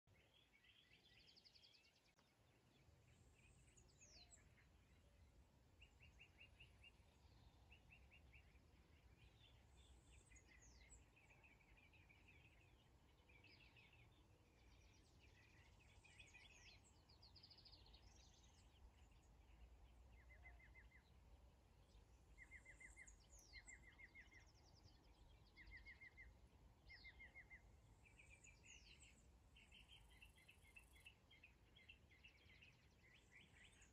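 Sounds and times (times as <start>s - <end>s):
birds chirping trills: 21.8s - 33.9s.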